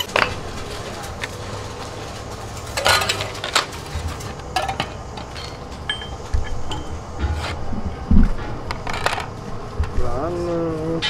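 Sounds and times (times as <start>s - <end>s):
metal parts clinking on steel: 2.7s - 6.9s.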